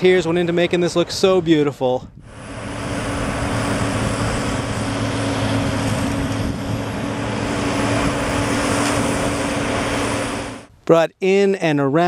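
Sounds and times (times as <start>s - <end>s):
crane engine running: 2.2s - 10.8s.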